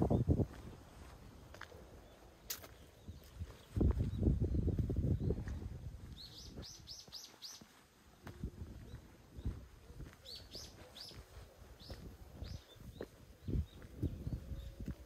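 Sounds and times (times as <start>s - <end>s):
small bird chirping: 6.2s - 7.8s, 10.2s - 14.8s.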